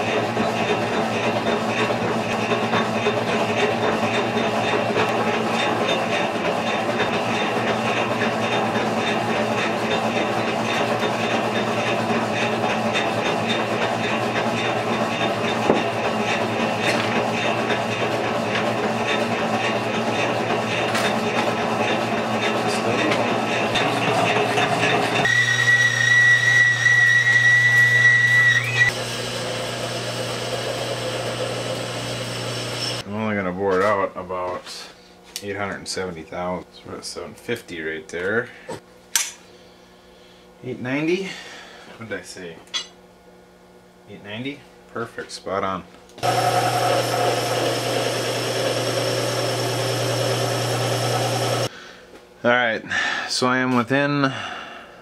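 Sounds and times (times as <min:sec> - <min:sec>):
boring bar cutting metal: 0:00.0 - 0:33.0, 0:46.2 - 0:51.7
metal lathe running: 0:00.0 - 0:33.0, 0:46.2 - 0:51.7
cutting tool squealing: 0:24.5 - 0:29.0, 0:30.8 - 0:33.0.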